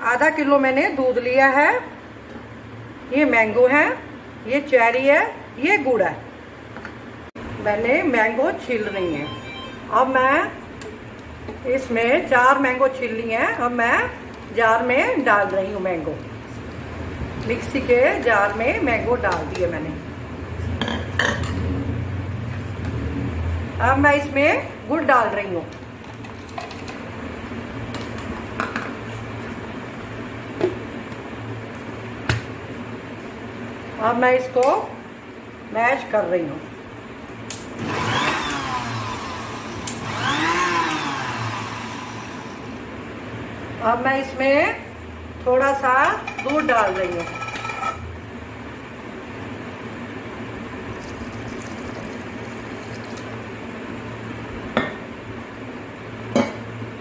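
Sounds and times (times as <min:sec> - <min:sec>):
milk pouring into jar: 0:51.0 - 0:53.3.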